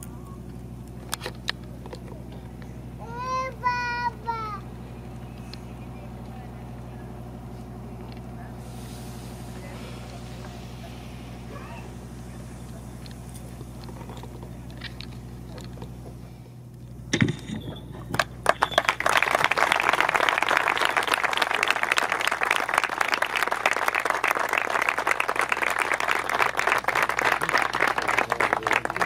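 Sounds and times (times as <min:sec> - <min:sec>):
low steady hum: 0:00.0 - 0:29.0
crowd applauding: 0:18.0 - 0:29.0.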